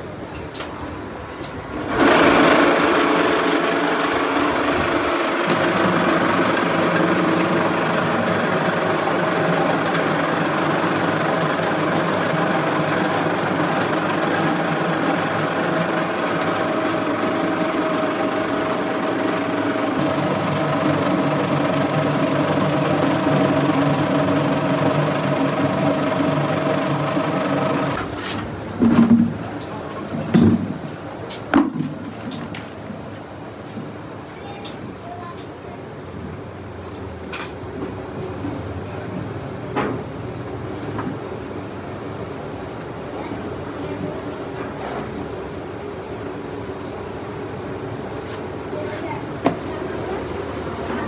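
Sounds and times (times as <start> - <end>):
electric motor humming: 1.9 - 28.0
potatoes churning in a drum: 1.9 - 28.0.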